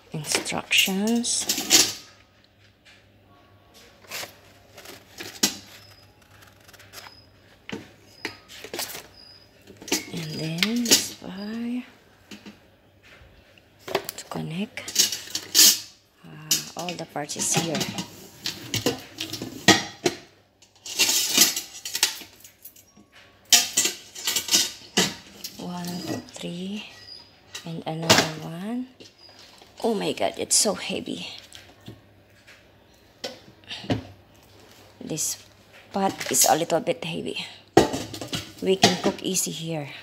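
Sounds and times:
steel rack clattering in pot: 0:00.2 - 0:02.2, 0:09.8 - 0:11.2, 0:14.8 - 0:22.6, 0:23.5 - 0:26.3
paper booklets rustling: 0:03.8 - 0:09.1.

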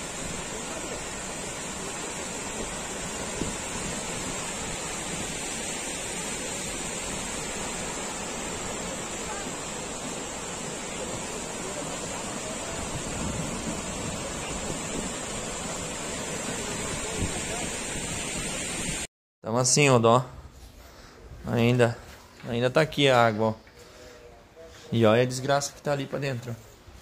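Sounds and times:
floodwater rushing: 0:00.0 - 0:19.1.

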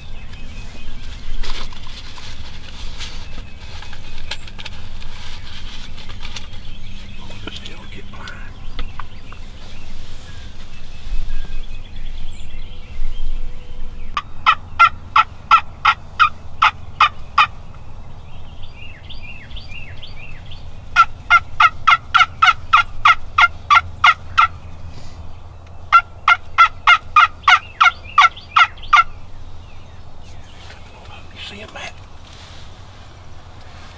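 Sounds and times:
wild turkey yelping: 0:14.2 - 0:17.6, 0:20.9 - 0:24.6, 0:25.9 - 0:29.2.

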